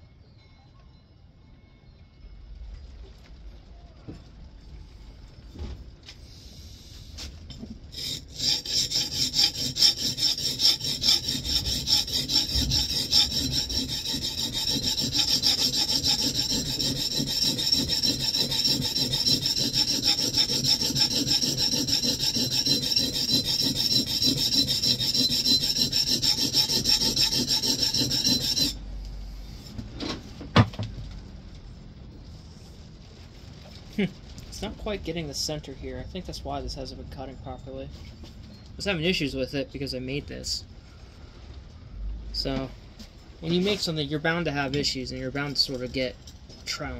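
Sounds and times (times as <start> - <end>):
plane iron rubbing on oilstone: 7.9 - 28.8.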